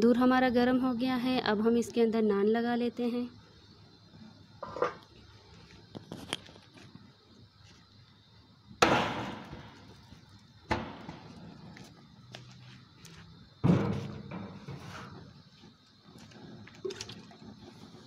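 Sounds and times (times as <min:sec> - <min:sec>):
knocks ringing in a metal drum: 0:08.8 - 0:09.8.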